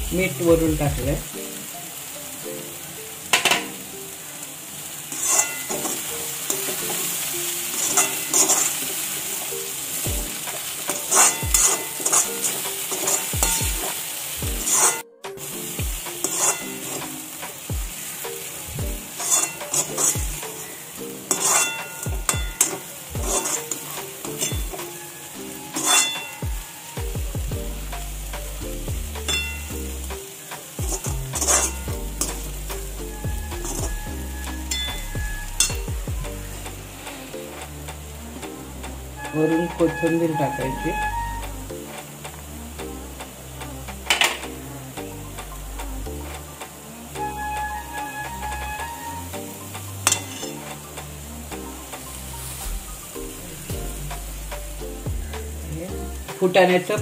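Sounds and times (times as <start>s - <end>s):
hot pan sizzling: 0.0s - 57.0s
metal spoon scraping metal pan: 5.1s - 9.6s, 10.3s - 14.0s, 14.6s - 15.0s, 16.0s - 17.3s, 19.1s - 27.0s, 31.0s - 35.9s, 39.2s - 41.5s, 47.2s - 49.4s, 50.0s - 50.8s.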